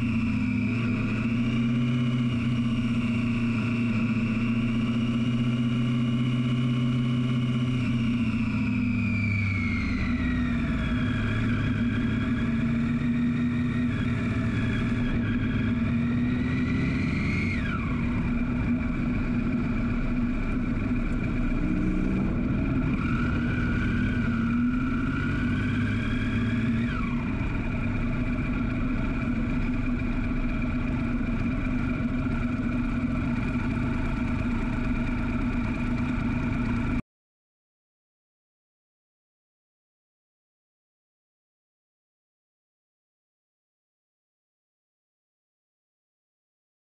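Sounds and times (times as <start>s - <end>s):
motorcycle engine at speed: 0.0s - 37.0s.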